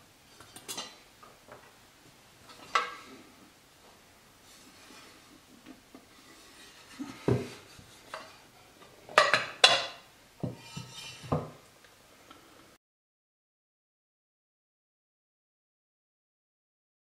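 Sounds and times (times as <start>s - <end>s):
metallic lid clanks: 0.4s - 1.0s, 9.2s - 11.6s.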